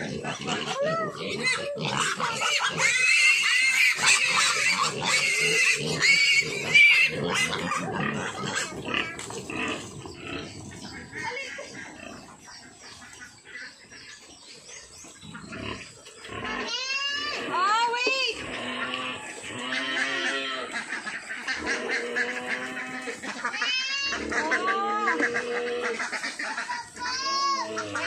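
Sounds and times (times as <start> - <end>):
piglets squealing: 0.0 - 14.0, 15.2 - 28.0.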